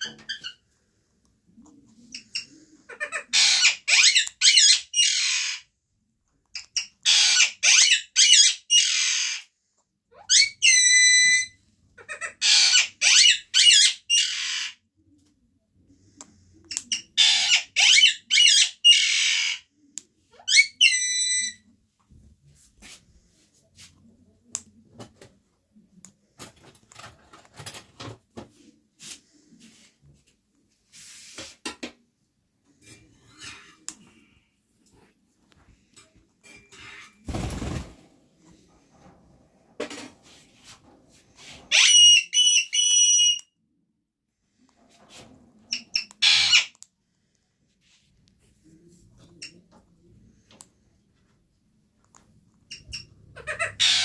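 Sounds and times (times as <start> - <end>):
parakeet screeching: 2.9 - 5.7, 7.0 - 9.5, 10.2 - 14.8, 17.0 - 19.6, 41.7 - 43.4, 45.8 - 46.7, 52.7 - 54.0.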